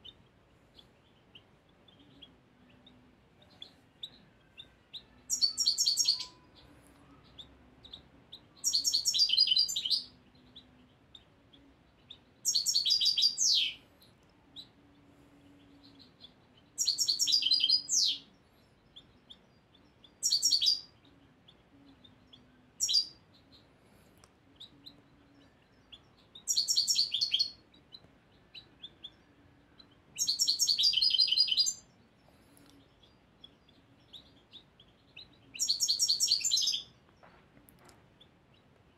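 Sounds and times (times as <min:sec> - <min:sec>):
goldfinch twittering song: 0:05.0 - 0:13.8, 0:15.6 - 0:37.3.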